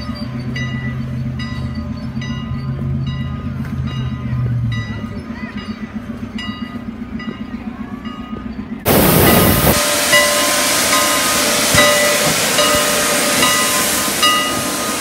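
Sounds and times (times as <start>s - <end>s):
steam locomotive hissing loudly: 8.9s - 15.0s.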